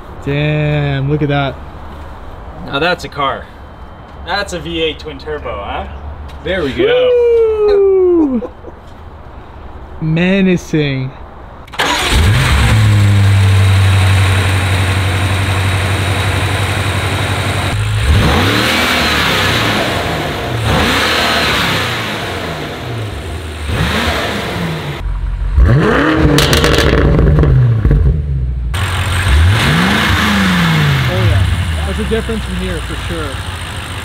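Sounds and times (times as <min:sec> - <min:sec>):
car engine idling: 0:11.7 - 0:34.0
engine revving in throttle blips: 0:11.7 - 0:34.0.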